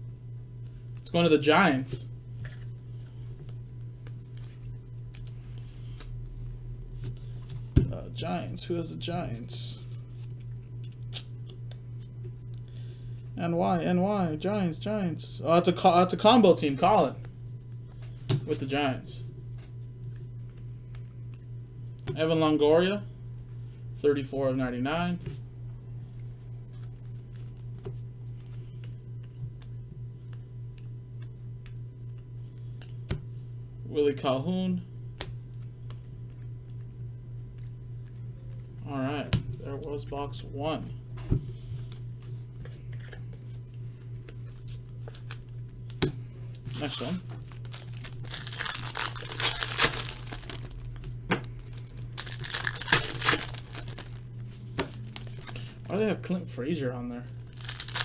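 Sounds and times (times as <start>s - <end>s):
steady low hum: 0.0s - 58.0s
trading cards shuffled: 3.4s - 6.2s, 41.8s - 46.0s, 46.6s - 56.0s, 57.2s - 58.0s
foil wrapper crinkling: 46.7s - 56.0s, 57.2s - 58.0s
foil tearing: 46.8s - 51.0s, 51.7s - 54.2s, 55.0s - 55.8s, 57.3s - 58.0s.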